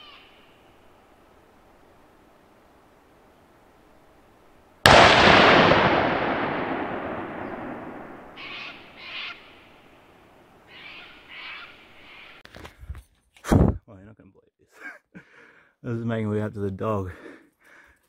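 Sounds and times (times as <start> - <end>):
rifle shot with echo: 4.8 - 9.0.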